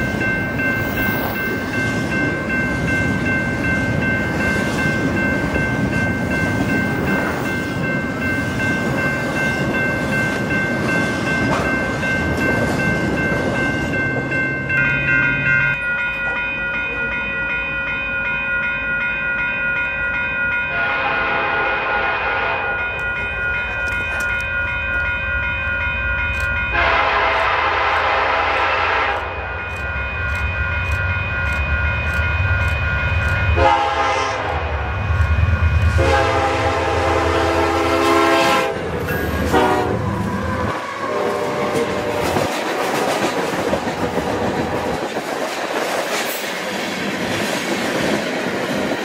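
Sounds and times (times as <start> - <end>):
train wheels on rails: 0.0 - 49.0
locomotive horn blasts: 20.7 - 22.8, 26.7 - 29.4, 33.5 - 34.8, 35.9 - 38.8, 39.4 - 42.5.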